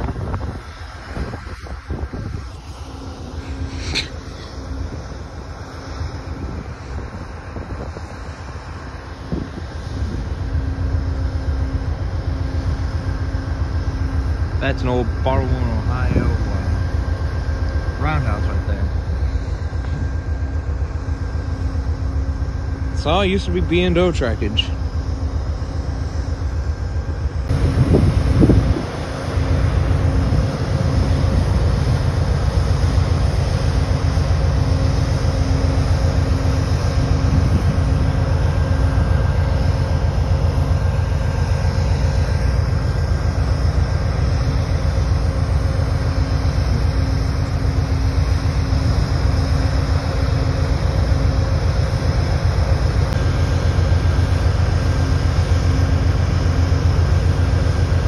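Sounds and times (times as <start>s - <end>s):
diesel locomotive droning: 0.0s - 58.0s
louder rumble: 26.4s - 49.3s.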